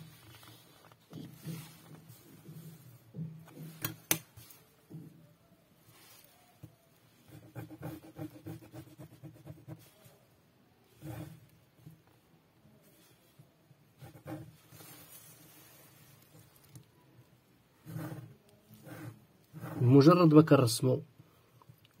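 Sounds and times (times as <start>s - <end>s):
pen scratching on paper: 7.2s - 10.2s, 10.9s - 11.5s, 14.0s - 15.0s, 17.8s - 20.0s.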